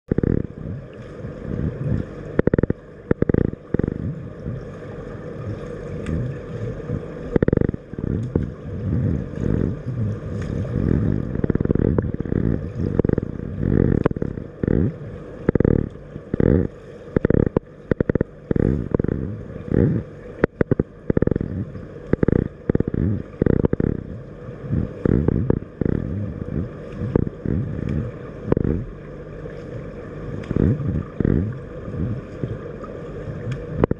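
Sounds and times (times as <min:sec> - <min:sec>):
muffled underwater churning: 0:00.0 - 0:33.9
gurgling water surges: 0:00.1 - 0:33.9
underwater thumps: 0:02.4 - 0:04.1, 0:06.9 - 0:21.5, 0:22.1 - 0:24.1, 0:24.9 - 0:28.9.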